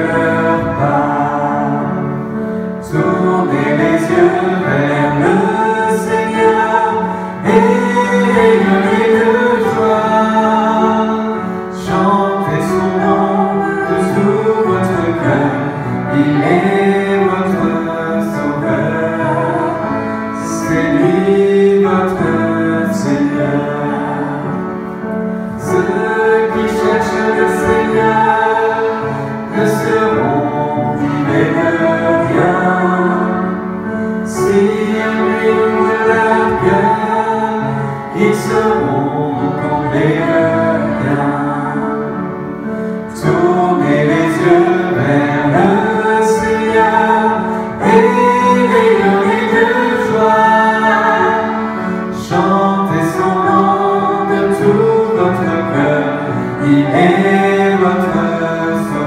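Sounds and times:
accordion: 0.0s - 59.0s
congregation singing a hymn: 0.0s - 59.0s
piano: 0.0s - 59.0s.

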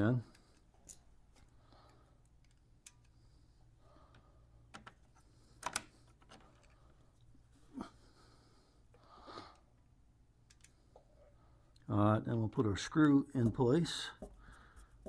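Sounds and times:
small clicks and taps of screw: 0.3s - 3.2s, 4.1s - 6.8s, 10.4s - 10.8s.

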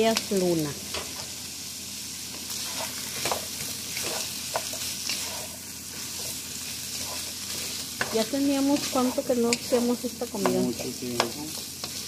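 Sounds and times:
food sizzling in a pot: 0.0s - 12.0s
wooden spoon scraping a pot: 2.5s - 10.8s.

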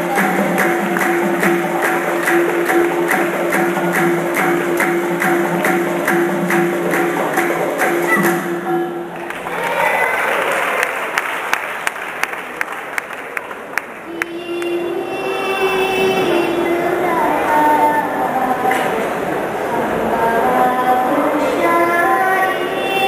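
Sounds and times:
crowd applause: 0.0s - 8.4s, 9.1s - 14.9s
sharp claps on beat: 0.1s - 8.4s.

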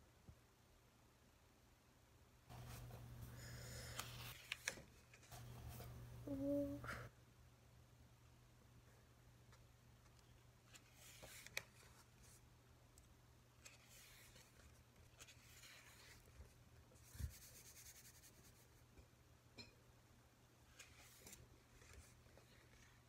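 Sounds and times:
rustling and handling noises: 2.5s - 6.2s, 9.4s - 18.9s, 20.6s - 23.0s.

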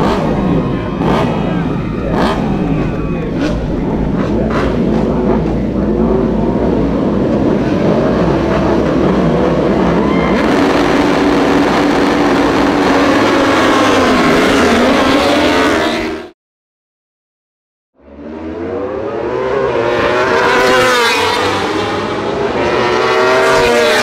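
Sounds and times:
motorcycle engines revving: 0.0s - 16.3s, 18.0s - 24.0s.

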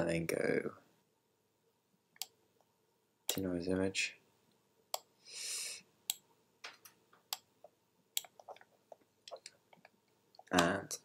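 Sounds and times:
short breathy hiss: 5.2s - 5.9s.

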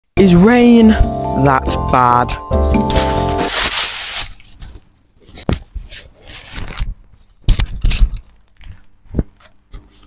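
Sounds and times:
umbrella canopy rustling: 2.7s - 7.2s.

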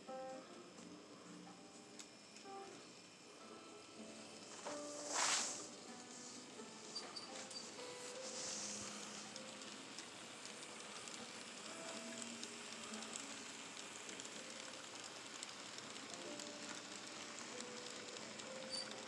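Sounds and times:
small wheels clicking on rails: 5.8s - 19.0s
model train cars rattling: 8.4s - 19.0s.

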